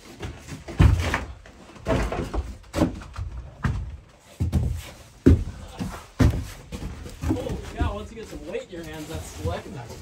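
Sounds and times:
hollow thumps and knocks: 0.0 - 8.3.

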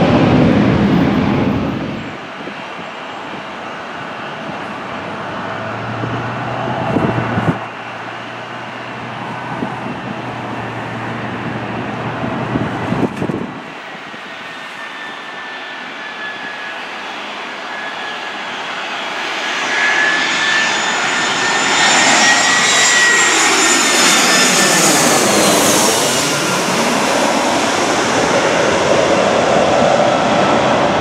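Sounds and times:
faint jet engine whine: 0.0 - 31.0
jet engines droning: 0.0 - 31.0.

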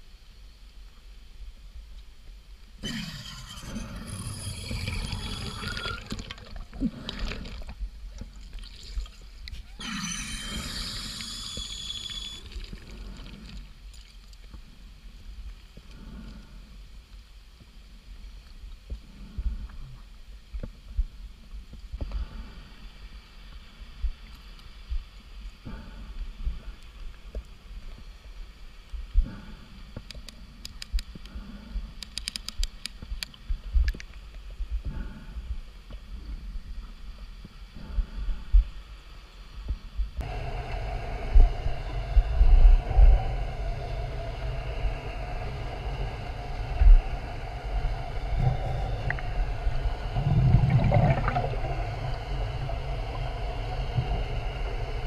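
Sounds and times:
diver breathing bubbles underwater: 2.8 - 7.8, 9.8 - 13.7, 40.2 - 55.0.

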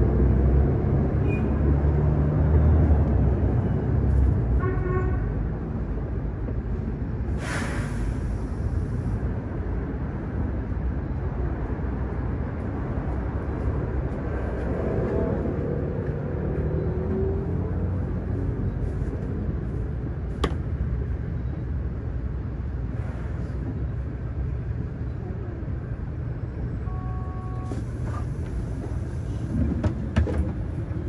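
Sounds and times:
low vehicle rumble: 0.0 - 31.0
burst of hiss: 7.4 - 8.5.

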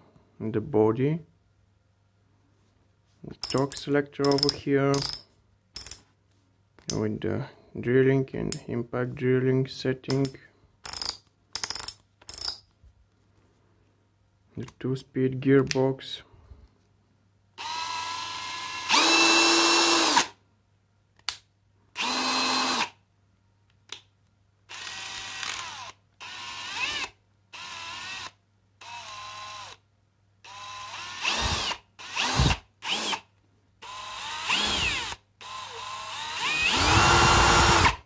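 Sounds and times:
cordless drill whining: 17.6 - 20.4, 22.0 - 22.9, 24.7 - 29.8, 30.4 - 38.0.

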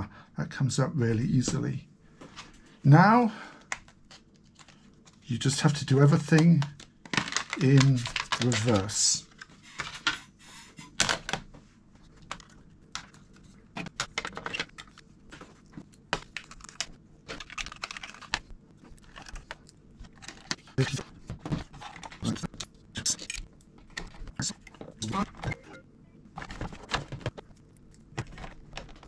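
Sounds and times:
plastic caddy being handled: 6.1 - 10.2.

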